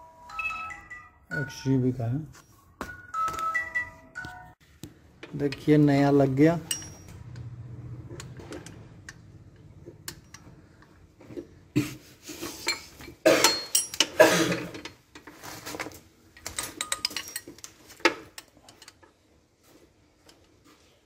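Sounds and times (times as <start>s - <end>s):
hand tools clinking on metal: 6.4s - 7.3s, 12.6s - 14.9s, 16.4s - 19.0s.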